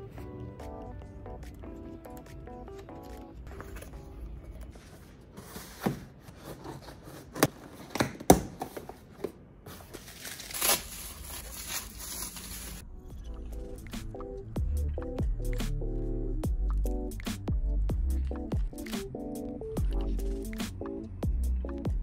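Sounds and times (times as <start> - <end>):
bubble wrap crinkling: 9.8 - 12.8.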